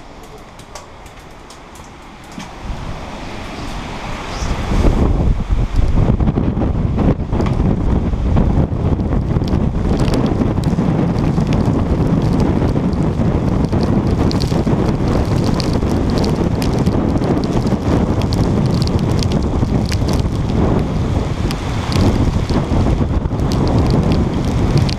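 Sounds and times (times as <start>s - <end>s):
raindrops ticking on camera: 0.0s - 2.6s, 8.5s - 24.9s
storm wind buffeting microphone: 0.0s - 24.9s.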